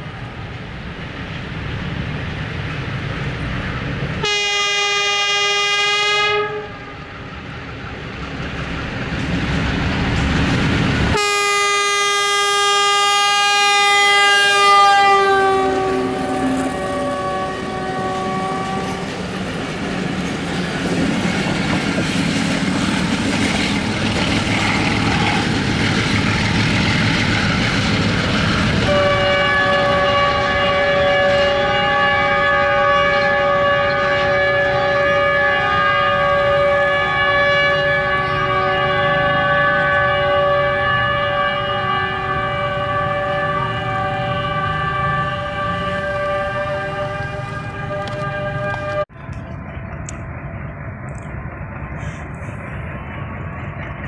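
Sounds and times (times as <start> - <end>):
locomotive horn blasts: 4.2 - 7.0, 11.1 - 19.2, 28.8 - 49.3.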